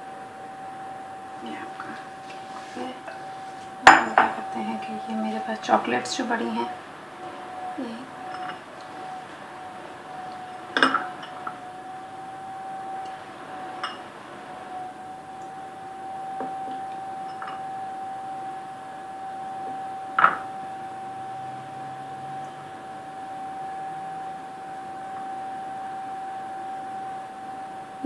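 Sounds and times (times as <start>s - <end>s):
steady high hum: 0.0s - 28.0s
clinks on glass bowl: 3.8s - 4.5s, 8.2s - 8.6s, 10.8s - 11.6s, 13.8s - 14.0s, 16.4s - 17.7s, 20.1s - 20.6s.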